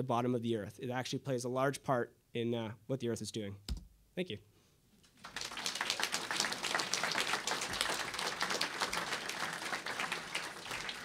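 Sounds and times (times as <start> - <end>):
audience applauding: 5.1 - 11.0.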